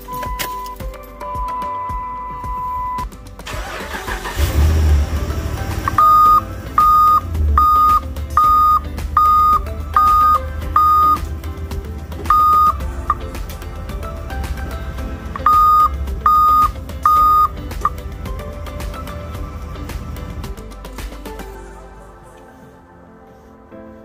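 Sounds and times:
reverse alarm beeping: 0:00.0 - 0:03.1, 0:05.9 - 0:11.2, 0:12.3 - 0:13.2, 0:15.4 - 0:18.0
truck engine idling: 0:03.5 - 0:20.8.

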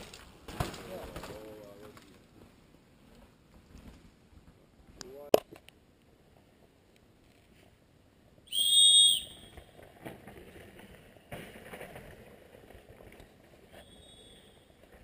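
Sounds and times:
distant whistle: 0:08.5 - 0:09.6, 0:13.8 - 0:14.7
whistle blast: 0:08.5 - 0:09.6, 0:13.8 - 0:14.5.

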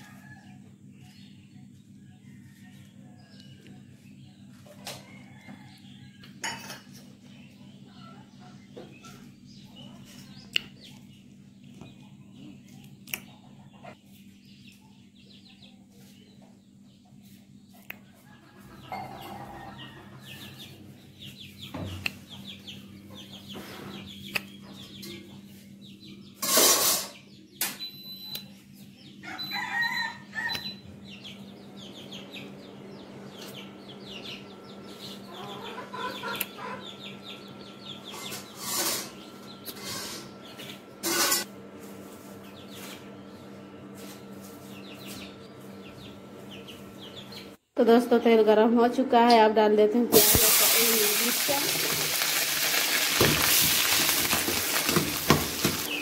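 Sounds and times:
chickens clucking: 0:00.0 - 0:15.0, 0:15.8 - 0:26.4, 0:28.8 - 0:41.4, 0:42.1 - 0:47.6, 0:50.2 - 0:56.0
rooster crowing: 0:04.9 - 0:06.0, 0:18.1 - 0:20.8, 0:29.2 - 0:30.8.

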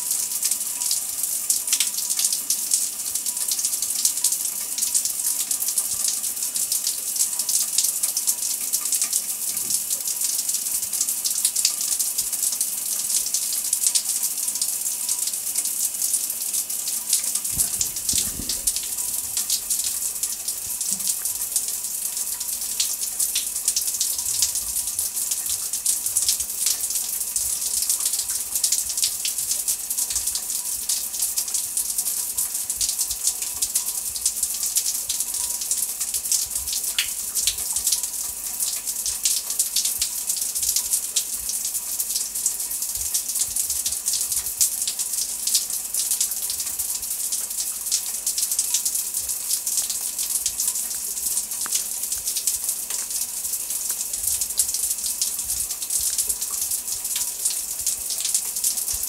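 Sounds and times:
shower water spray hissing: 0:14.7 - 0:31.7.

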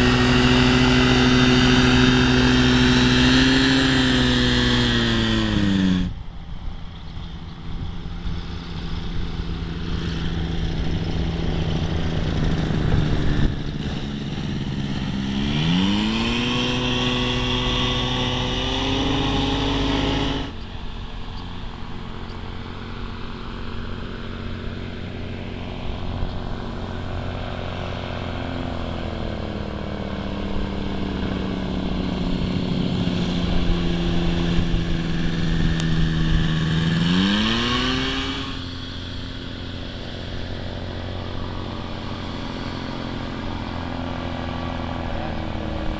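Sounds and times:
two-stroke engine and propeller: 0:00.0 - 0:45.9.

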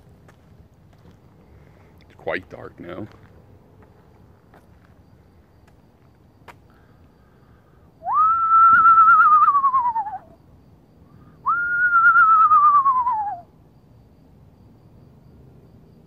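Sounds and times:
person whistling owl calls: 0:08.0 - 0:10.4, 0:11.4 - 0:13.5.

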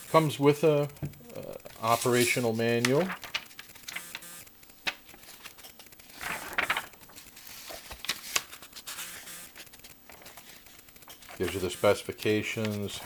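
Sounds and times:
paper pages rustling and turning: 0:01.7 - 0:13.0.

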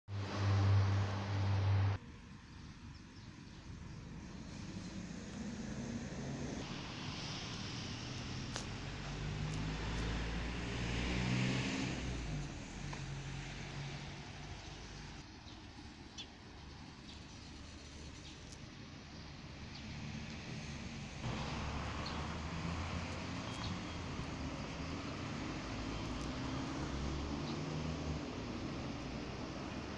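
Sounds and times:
vehicle engine passing by: 0:00.1 - 0:02.0, 0:04.2 - 0:15.2, 0:19.6 - 0:29.9.

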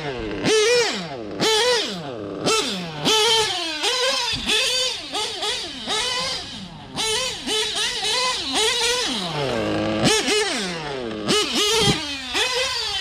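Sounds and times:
nitro engine revving: 0:00.0 - 0:13.0.

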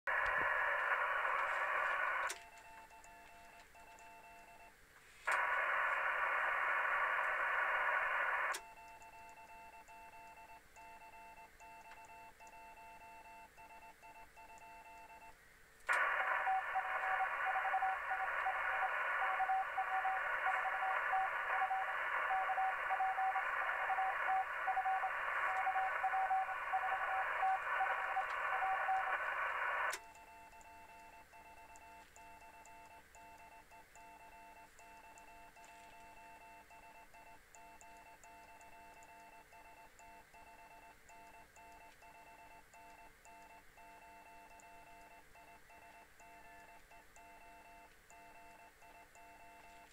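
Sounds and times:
radio static: 0:00.1 - 0:02.4, 0:05.2 - 0:08.6, 0:15.9 - 0:30.8
morse code beeping: 0:16.0 - 0:29.5.

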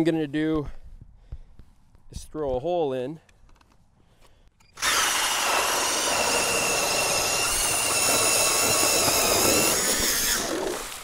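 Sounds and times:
electric ice auger drilling: 0:04.8 - 0:11.0
grinding hiss of ice: 0:04.8 - 0:11.0.

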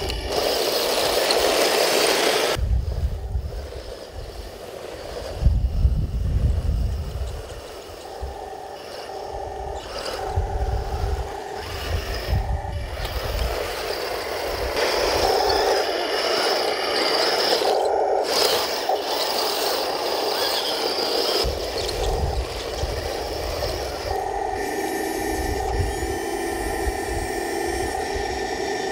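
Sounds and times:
electric motors whining: 0:00.0 - 0:28.9.

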